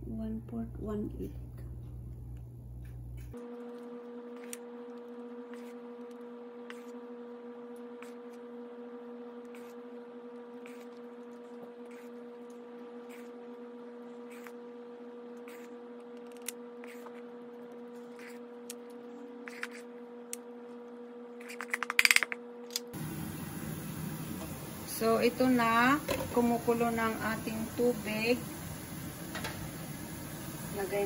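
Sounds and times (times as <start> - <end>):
electrical hum: 0.0 - 31.0
steamer hissing: 23.0 - 31.0.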